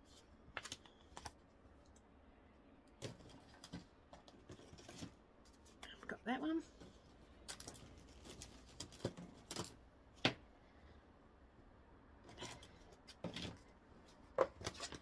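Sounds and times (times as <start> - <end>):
canvases rustling and knocking: 12.2 - 15.0.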